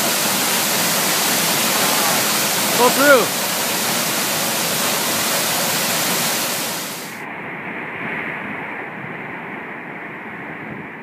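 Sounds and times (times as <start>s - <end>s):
waterfall rushing: 0.0s - 7.2s.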